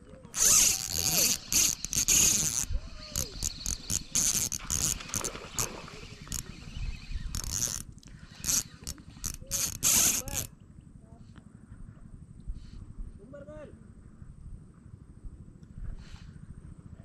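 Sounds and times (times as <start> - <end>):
fishing reel whirring: 0.3 - 10.5.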